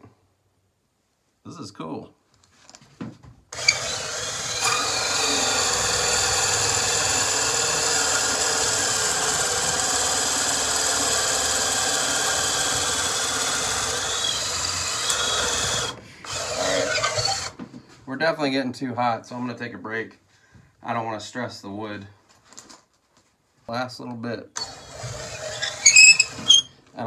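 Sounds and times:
cordless drill whining: 3.5s - 17.6s, 24.6s - 26.8s
wood being scraped by die: 3.6s - 17.6s, 25.1s - 26.7s.

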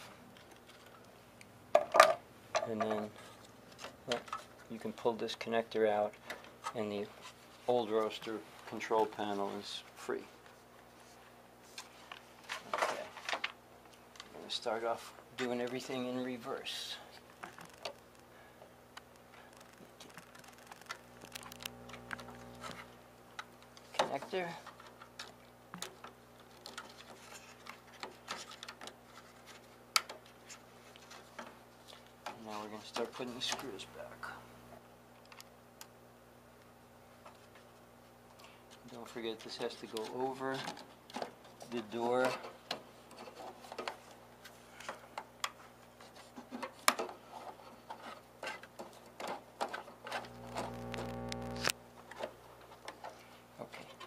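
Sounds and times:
wires rustling: 19.0s - 34.0s, 37.2s - 54.0s.

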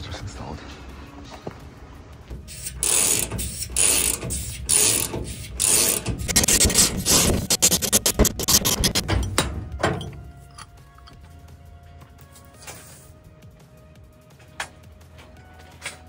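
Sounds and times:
hand ratchet clicking: 2.5s - 9.2s.

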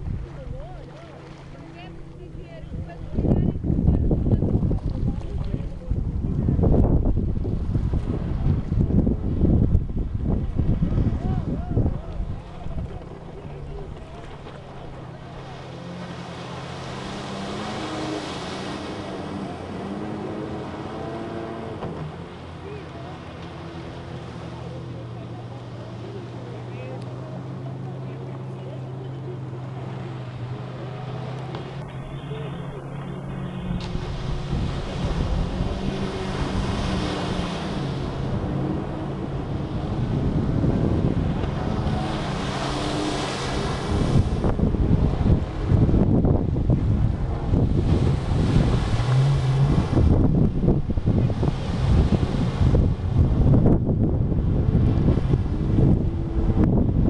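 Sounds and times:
wind buffeting microphone: 0.0s - 22.4s, 29.7s - 57.0s
jet ski engine passing: 0.0s - 57.0s
rush of spray: 29.4s - 44.6s.

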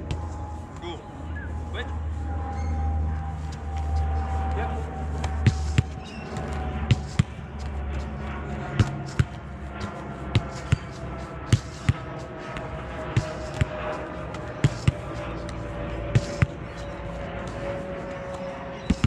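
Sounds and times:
football kicked: 5.2s - 7.4s, 8.8s - 9.4s, 10.3s - 16.8s.

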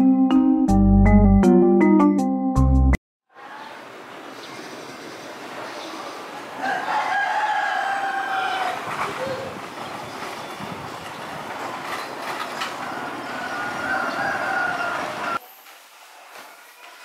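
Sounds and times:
approaching train noise: 3.9s - 17.0s.

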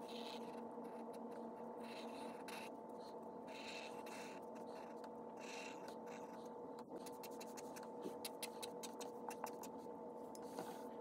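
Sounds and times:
marker drawing on paper: 0.0s - 9.8s
faint steady hum: 0.0s - 11.0s.

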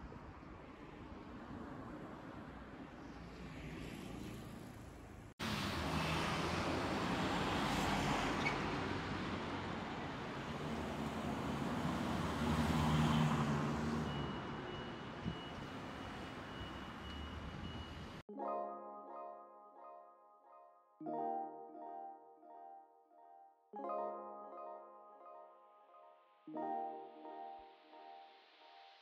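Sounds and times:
vehicles passing on city street: 0.0s - 18.3s.

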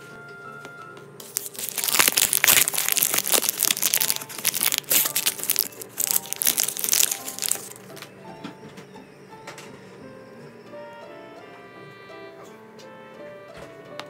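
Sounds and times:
plastic bag crinkling and tearing: 1.2s - 8.0s.

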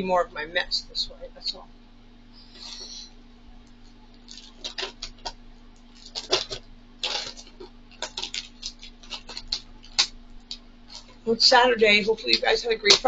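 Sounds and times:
paper packaging crinkling: 4.2s - 11.2s.

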